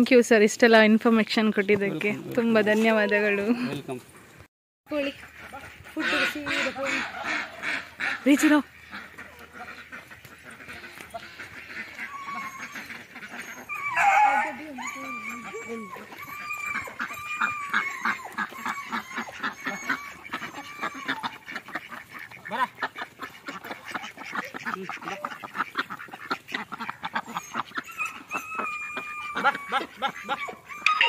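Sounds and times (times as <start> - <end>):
ducks quacking: 4.9 - 31.0
wavering high-pitched tone: 30.7 - 31.0.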